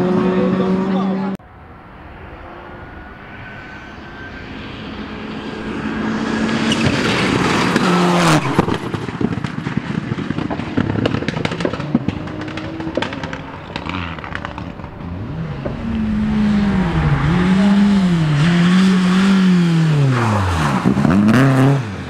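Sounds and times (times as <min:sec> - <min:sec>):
rally car engine full throttle: 0:00.0 - 0:01.4, 0:03.5 - 0:22.0
exhaust cracks and pops: 0:06.8 - 0:15.8.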